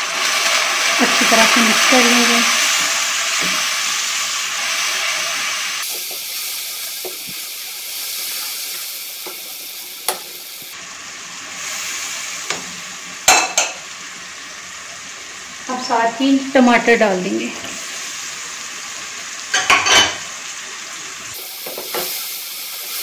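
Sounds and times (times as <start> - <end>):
onions sizzling in a wok: 0.0 - 23.0.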